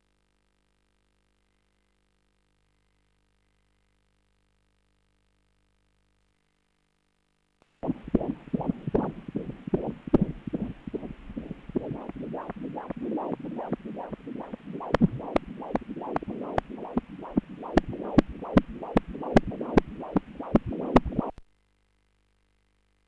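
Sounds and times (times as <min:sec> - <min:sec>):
doppler blood flow pulsing: 0:07.8 - 0:21.4
sharp clicks: 0:07.8 - 0:21.4.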